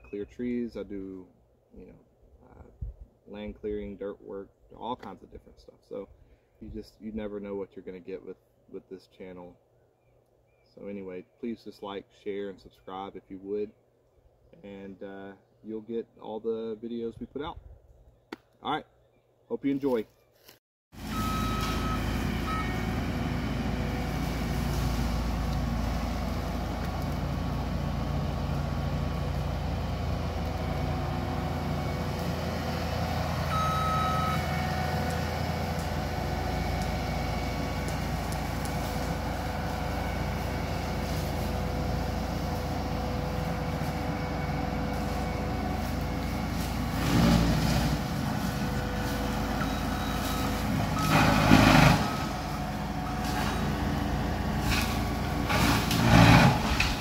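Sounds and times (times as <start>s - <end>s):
brush-cutter mulcher running: 21.0s - 57.0s.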